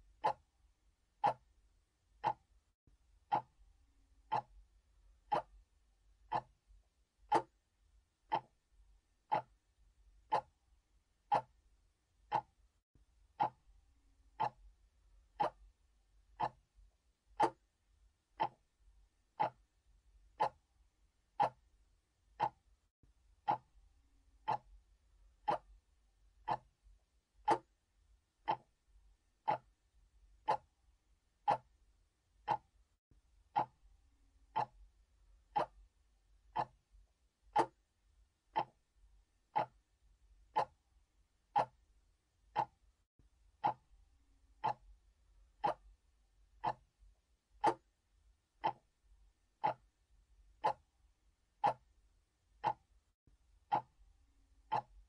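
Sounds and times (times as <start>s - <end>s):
mechanical clock ticking: 0.1s - 0.5s, 1.2s - 1.5s, 2.2s - 2.5s, 3.3s - 3.6s, 4.2s - 4.6s, 5.3s - 5.6s, 6.3s - 6.6s, 7.3s - 7.6s, 8.3s - 8.6s, 9.3s - 9.6s, 10.2s - 10.6s, 11.3s - 11.6s, 12.2s - 12.6s, 13.4s - 13.7s, 14.3s - 14.7s, 15.4s - 15.8s, 16.4s - 16.7s, 17.4s - 17.7s, 18.4s - 18.7s, 19.4s - 19.7s, 20.3s - 20.7s, 21.3s - 21.7s, 22.3s - 22.7s, 23.4s - 23.8s, 24.4s - 24.8s, 25.4s - 25.8s, 26.4s - 26.8s, 27.4s - 27.8s, 28.4s - 28.8s, 29.4s - 29.8s, 30.4s - 30.8s, 31.4s - 31.8s, 32.4s - 32.8s, 33.5s - 33.8s, 34.5s - 34.9s, 35.5s - 35.9s, 36.5s - 36.8s, 37.5s - 37.8s, 38.5s - 38.8s, 39.5s - 39.9s, 40.5s - 40.8s, 41.5s - 41.8s, 42.5s - 42.8s, 43.6s - 43.9s, 44.6s - 45.0s, 45.6s - 45.9s, 46.6s - 46.9s, 47.6s - 47.9s, 48.6s - 49.0s, 49.6s - 50.0s, 50.6s - 50.9s, 51.6s - 51.9s, 52.6s - 52.9s, 53.7s - 54.0s, 54.6s - 55.0s.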